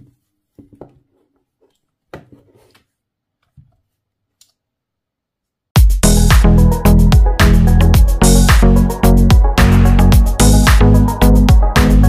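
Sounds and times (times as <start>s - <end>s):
electronic music with steady beat: 5.8s - 12.0s.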